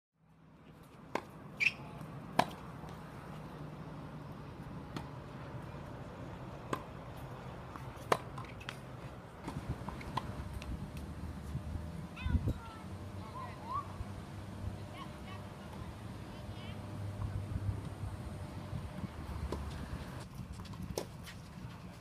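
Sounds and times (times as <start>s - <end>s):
shoe squeak: 1.6s - 2.0s
tennis balls being struck: 2.3s - 3.0s, 6.6s - 11.3s
low hum: 9.5s - 20.2s.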